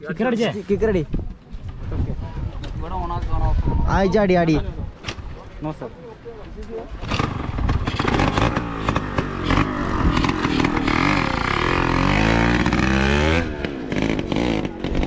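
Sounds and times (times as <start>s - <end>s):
motorcycle engine revving: 7.0s - 15.0s.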